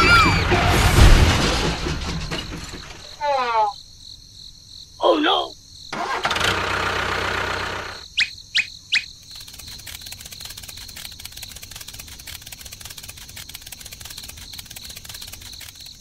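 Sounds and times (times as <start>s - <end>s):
whistle-like chirps: 8.2s - 9.1s
faint fast ticking: 9.0s - 16.0s.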